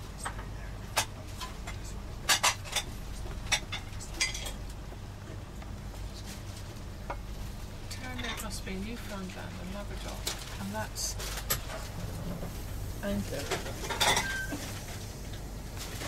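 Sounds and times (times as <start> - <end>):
train coach low hum: 0.0 - 16.0
crockery and cutlery clinking: 13.4 - 14.6.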